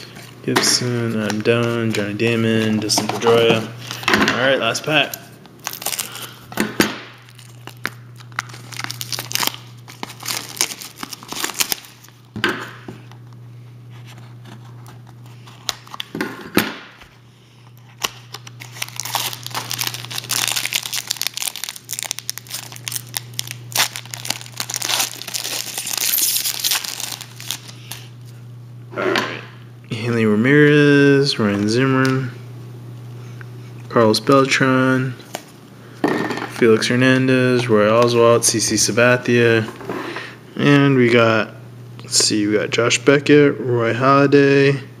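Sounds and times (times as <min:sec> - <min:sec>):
steady low hum: 0:00.0 - 0:45.0
foil wrapper crinkling and tearing: 0:05.5 - 0:06.4, 0:07.2 - 0:12.3, 0:17.8 - 0:28.1.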